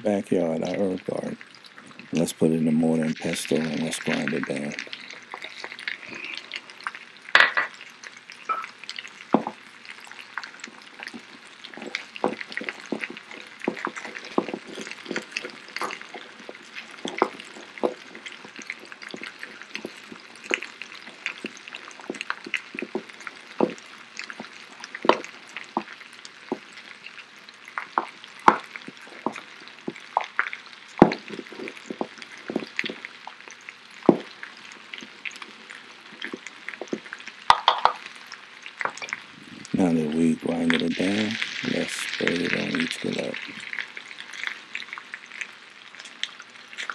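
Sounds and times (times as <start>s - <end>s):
potatoes sizzling in pans: 0.0s - 46.9s
pestle grinding seeds in mortar: 11.2s - 20.6s.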